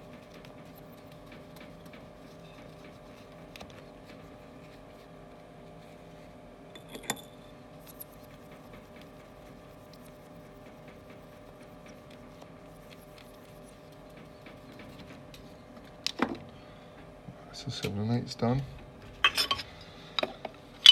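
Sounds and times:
faint sponge rubbing: 7.9 - 14.4.

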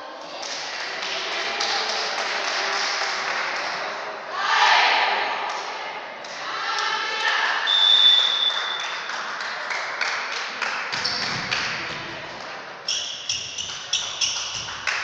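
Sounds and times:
referee's whistle: 7.6 - 8.9
rapid sharp claps: 8.3 - 12.0, 13.4 - 15.0.

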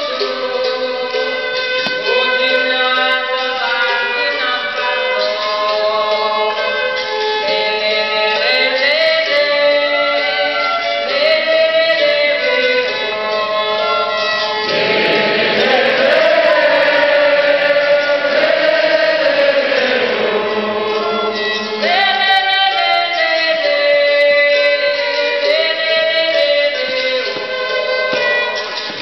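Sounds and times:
violin playing: 0.0 - 28.9
group of voices singing: 14.6 - 23.0.

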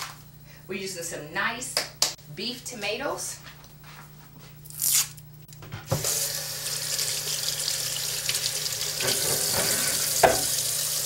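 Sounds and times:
tap water running into sink: 5.9 - 11.0.

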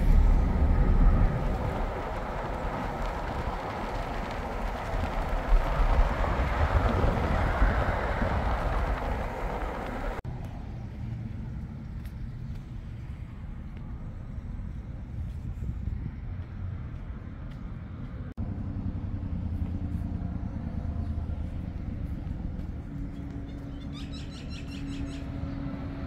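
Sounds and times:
low outdoor rumble: 0.0 - 26.0
road and engine noise inside car: 0.0 - 26.0.

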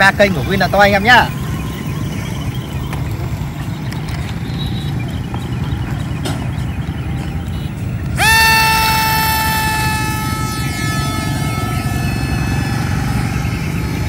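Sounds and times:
model plane motor whine: 8.2 - 14.0.

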